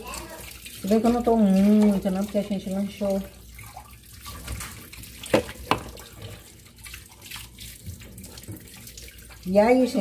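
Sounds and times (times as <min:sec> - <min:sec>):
running water: 0:00.0 - 0:10.0.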